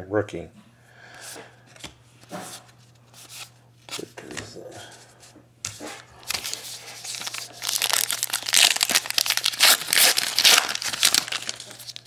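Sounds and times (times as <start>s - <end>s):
foil wrapper crinkling: 6.3s - 12.0s.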